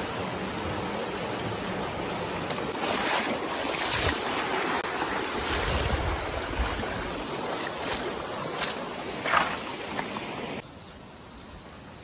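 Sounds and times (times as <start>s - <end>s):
rocky stream rushing: 0.0s - 10.6s
wind buffeting microphone: 5.2s - 7.3s.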